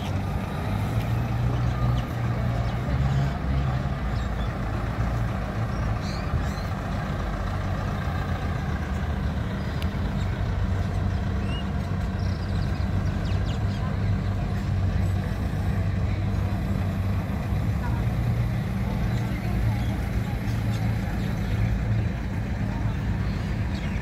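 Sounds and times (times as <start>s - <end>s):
heavy vehicle engine: 0.0s - 24.0s
road traffic rumble: 0.0s - 24.0s.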